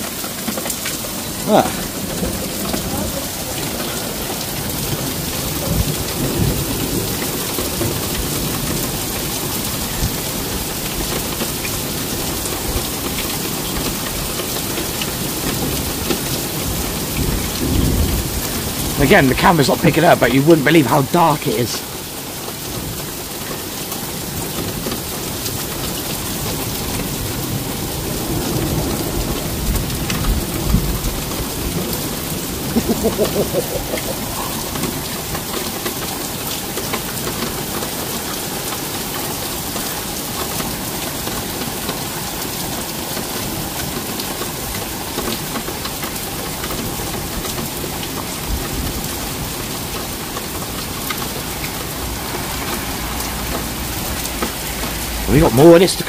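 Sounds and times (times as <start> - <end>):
heavy rain pouring: 0.0 - 56.0
thunder rumbling: 27.2 - 35.2.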